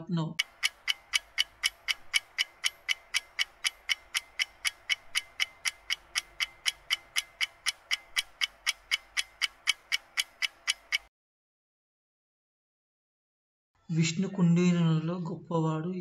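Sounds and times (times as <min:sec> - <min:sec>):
clock ticking: 0:00.2 - 0:11.1.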